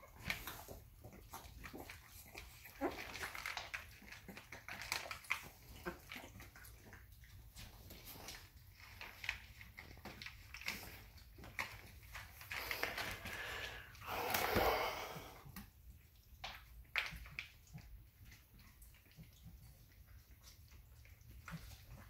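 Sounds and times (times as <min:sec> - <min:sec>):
puppies eating and snuffling: 0:00.0 - 0:22.0.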